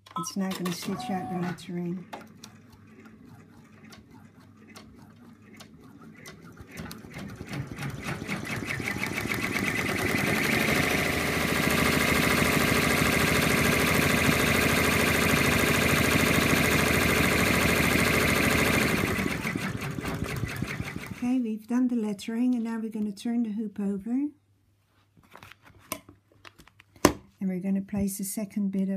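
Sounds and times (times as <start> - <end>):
embroidery machine stitching: 0.6 - 21.2.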